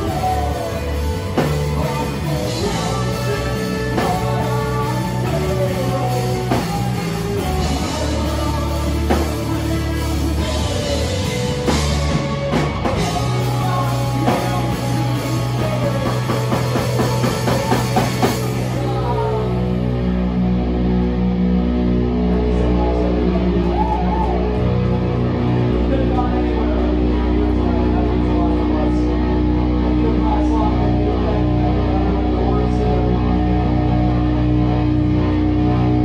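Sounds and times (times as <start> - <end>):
bass guitar: 0.0 - 36.0
drum kit: 0.0 - 36.0
electric guitars: 0.0 - 36.0.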